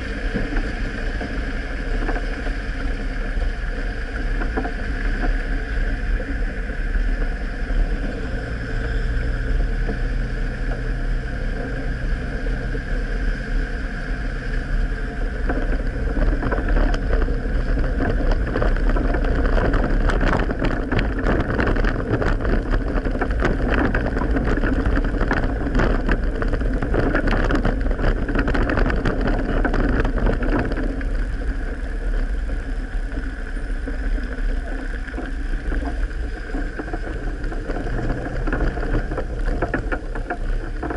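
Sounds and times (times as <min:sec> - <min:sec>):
vehicle engine running: 0:00.0 - 0:40.9
rapid rattling and knocks: 0:15.2 - 0:40.9.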